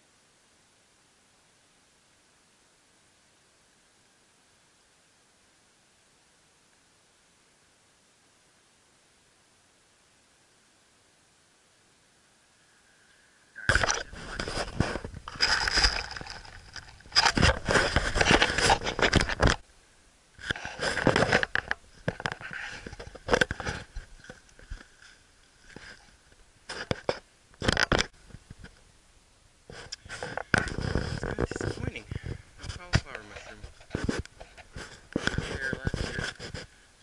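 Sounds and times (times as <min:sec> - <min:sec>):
camera handling scraping: 0:13.7 - 0:19.6, 0:20.4 - 0:26.1, 0:29.7 - 0:36.7.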